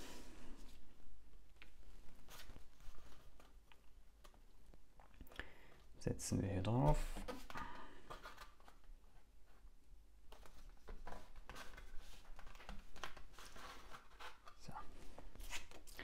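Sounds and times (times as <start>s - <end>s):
paper rustling: 1.6s - 4.4s, 10.3s - 16.0s.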